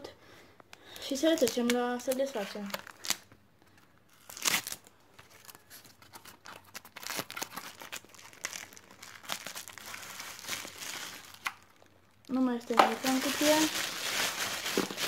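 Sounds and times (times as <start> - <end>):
plastic crinkling: 0.9 - 15.0
cardboard rustling: 12.9 - 15.0.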